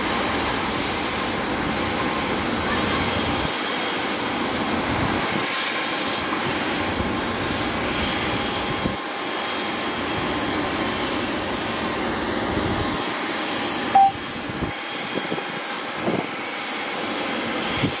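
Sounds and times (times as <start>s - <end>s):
short loud beep: 14.0s - 14.2s.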